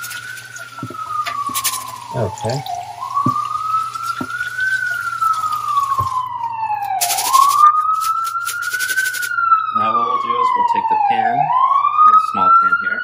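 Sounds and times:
tap water running over rice: 0.0s - 6.3s, 6.9s - 9.3s
water splashing: 0.0s - 6.3s
siren wailing: 0.0s - 13.0s.

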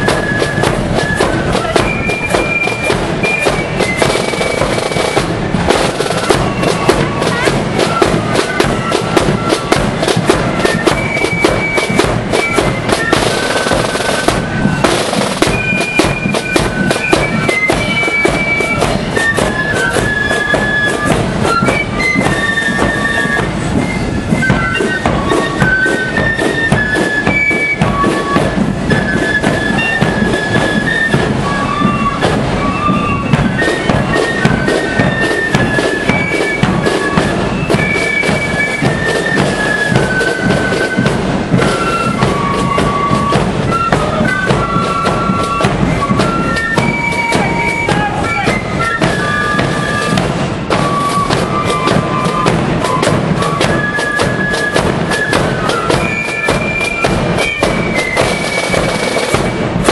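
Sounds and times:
flutes playing shrill melody: 0.0s - 59.9s
rapid snare drum strokes: 0.0s - 59.9s.

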